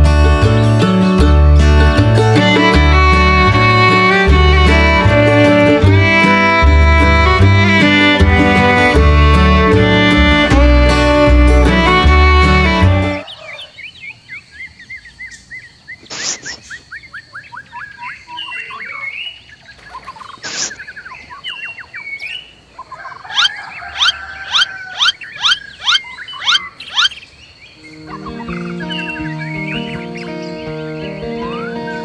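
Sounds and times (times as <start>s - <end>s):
music: 0.0s - 13.2s, 27.8s - 32.0s
birds chirping: 2.0s - 32.0s
sharp calls: 15.9s - 32.0s.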